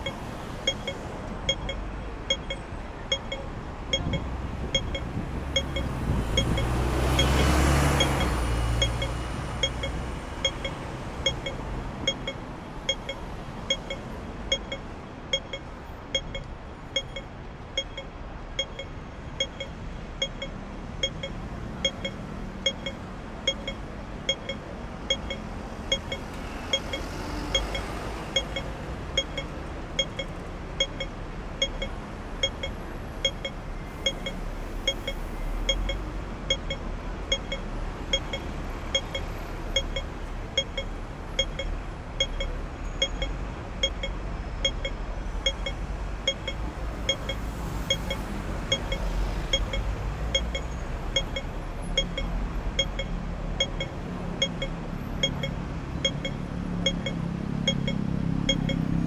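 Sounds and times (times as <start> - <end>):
crossing signal beeping: 0.0 - 59.0
traffic hum: 0.0 - 59.0
vehicle passing: 5.2 - 12.0.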